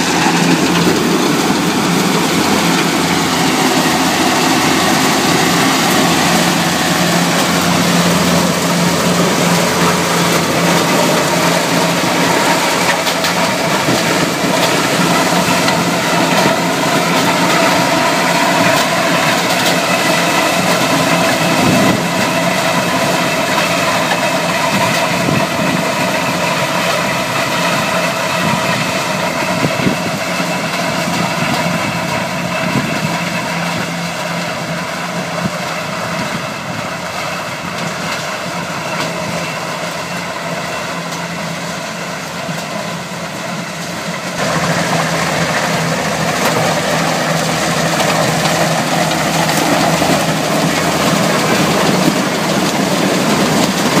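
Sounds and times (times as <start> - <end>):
high-pitched drone: 0.0 - 33.8
combine harvester engine and machinery: 0.0 - 54.0.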